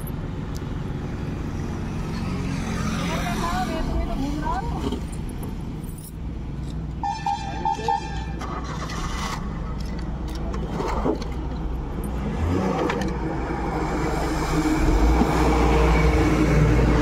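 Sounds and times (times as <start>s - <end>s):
vehicle engines rumbling: 0.0s - 17.0s
heavy truck passing: 12.3s - 17.0s.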